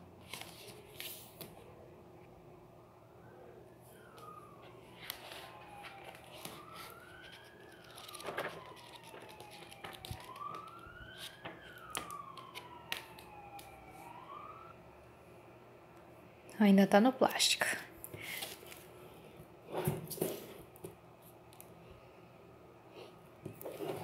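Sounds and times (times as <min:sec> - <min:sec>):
book pages rustling: 0:00.2 - 0:01.6, 0:04.0 - 0:14.1, 0:18.2 - 0:18.9, 0:23.5 - 0:24.0
faint siren wailing: 0:01.6 - 0:15.9.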